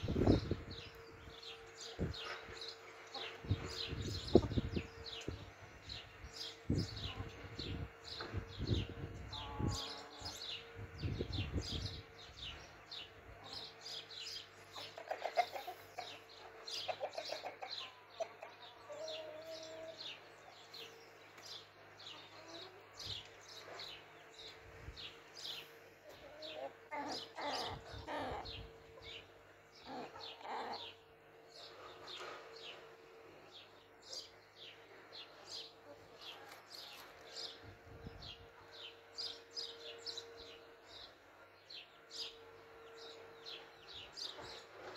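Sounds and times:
chickens clucking softly: 14.6s - 20.3s.

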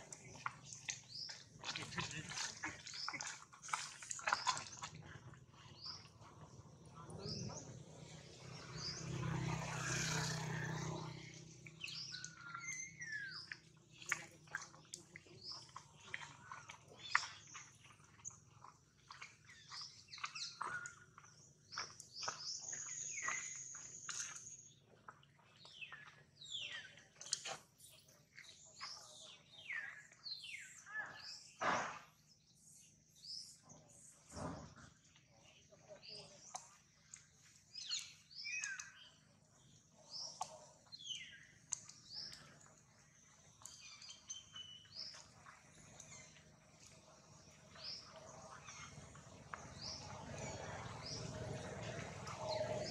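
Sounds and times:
high chirping calls: 37.7s - 39.2s.

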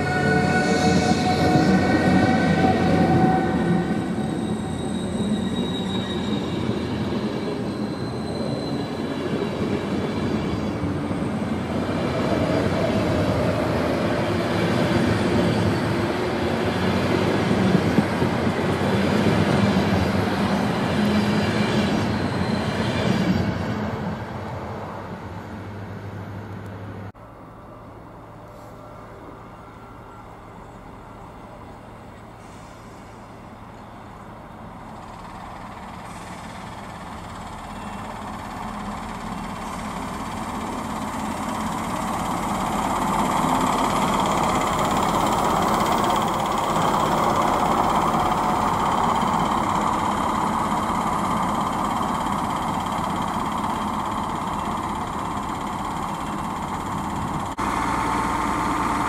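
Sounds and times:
diesel railcar passing: 0.0s - 59.0s.

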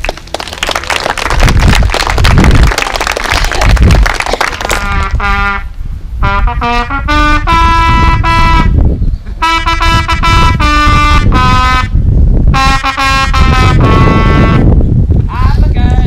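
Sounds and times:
wind instrument melody: 4.6s - 14.9s.

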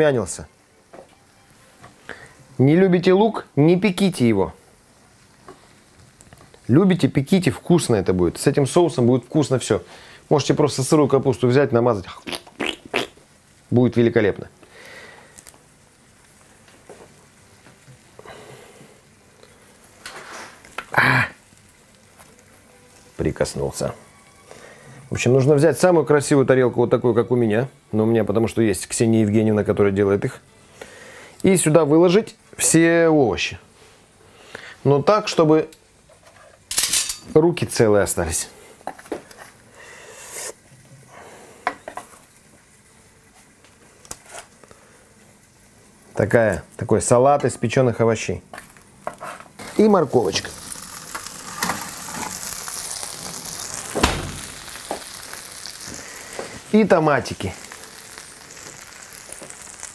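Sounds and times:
metal spoon clinking on dishes: 36.7s - 37.3s
brief loud burst: 54.0s - 54.7s.

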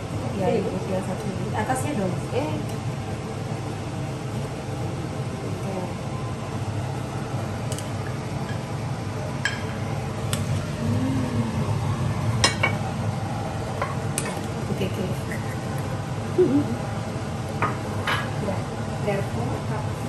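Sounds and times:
steady low hum: 0.0s - 20.0s
kitchenware clinking: 17.6s - 18.4s.

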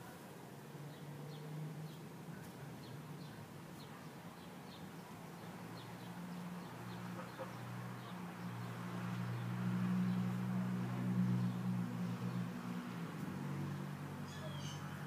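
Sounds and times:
faint bird chirps: 14.3s - 15.0s.

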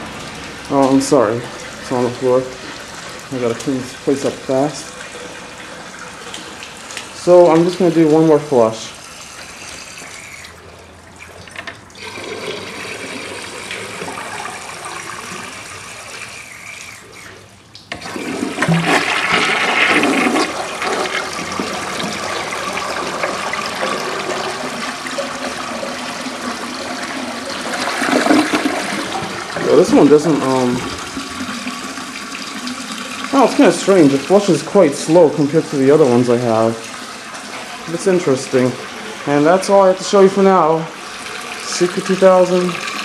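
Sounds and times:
faint running water: 0.0s - 43.0s
toilet flushing: 0.0s - 43.0s.

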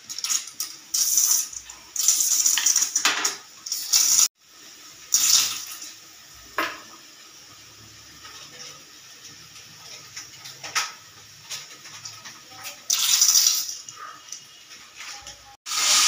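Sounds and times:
pressure cooker hissing steam: 0.0s - 8.2s, 15.7s - 16.0s.

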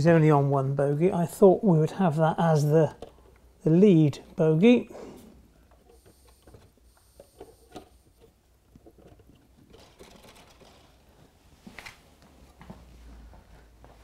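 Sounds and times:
model train clicking on rails: 9.7s - 10.9s.

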